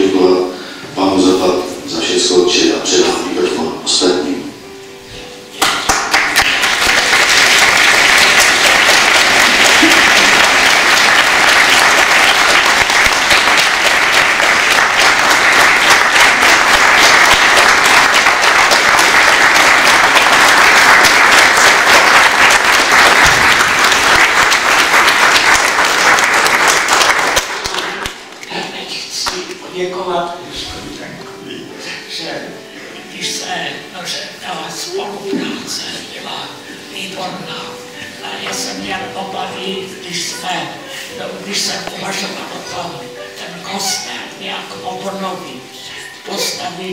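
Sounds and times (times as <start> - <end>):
congregation applauding: 5.6 - 29.6.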